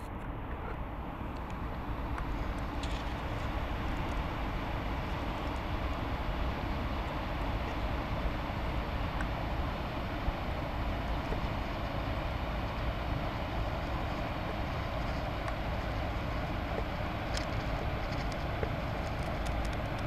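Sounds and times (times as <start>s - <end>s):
ship motor rumble: 0.0s - 20.0s.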